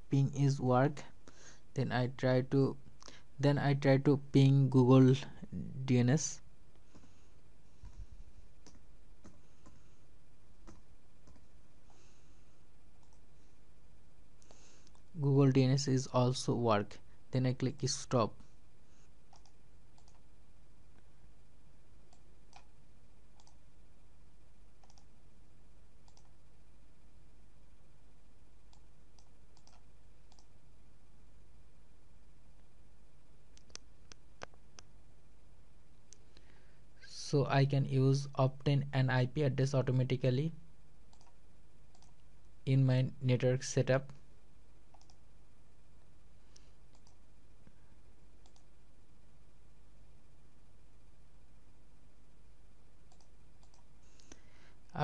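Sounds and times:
low electrical hum: 0.0 - 55.0
computer mouse clicks: 7.8 - 9.8, 10.6 - 11.5, 13.0 - 13.3, 14.4 - 15.1, 19.3 - 20.3, 22.1 - 23.6, 24.8 - 25.1, 26.0 - 26.4, 28.7 - 30.5, 33.5 - 34.9, 41.1 - 42.2, 44.9 - 45.2, 46.5 - 47.2, 48.4 - 48.7, 53.1 - 54.4.

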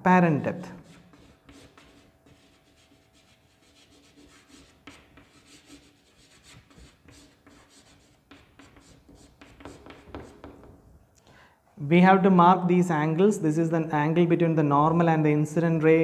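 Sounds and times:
chalk scratching on a chalkboard: 0.8 - 10.8.

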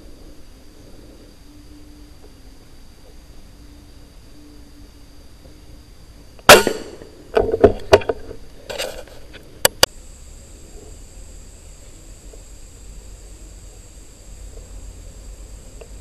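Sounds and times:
air rifle shot: 6.5 - 7.1.

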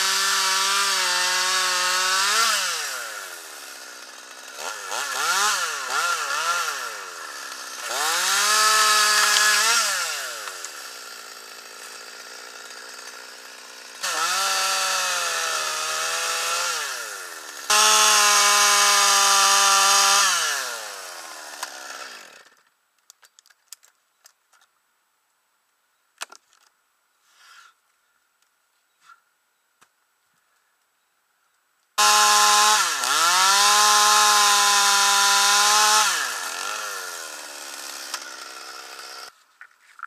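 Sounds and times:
chainsaw revving: 0.0 - 22.6, 32.0 - 39.4.

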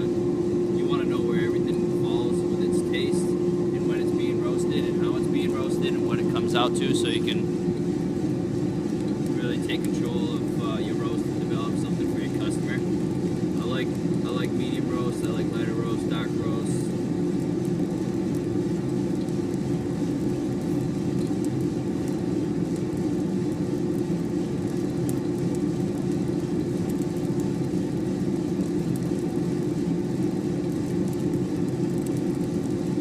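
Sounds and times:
coffee roaster humming: 0.0 - 33.0.

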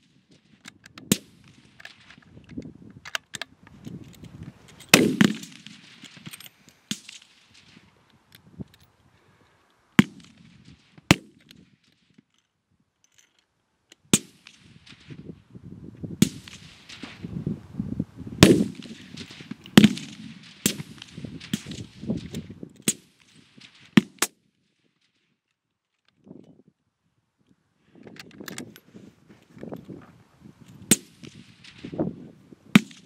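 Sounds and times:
rifle shots: 4.9 - 7.8, 18.4 - 22.1, 32.8 - 33.0.

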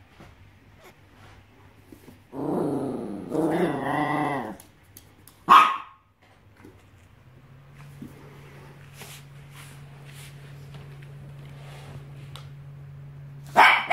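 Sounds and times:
dog growling low: 2.3 - 4.6
dog barking sharply: 5.5 - 6.0, 13.5 - 13.9.

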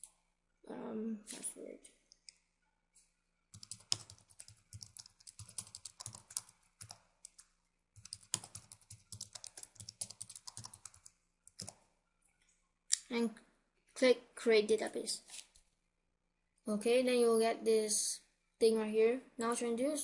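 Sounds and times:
computer keyboard typing: 3.5 - 11.9.

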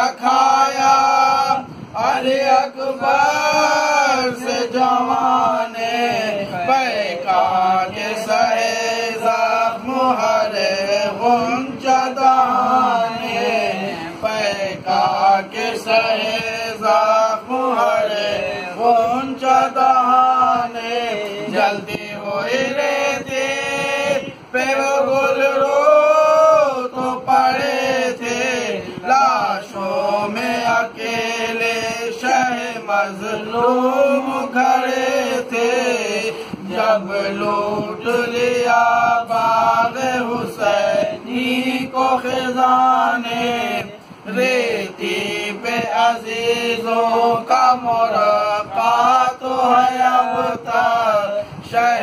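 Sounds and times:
men chanting: 0.0 - 52.0.

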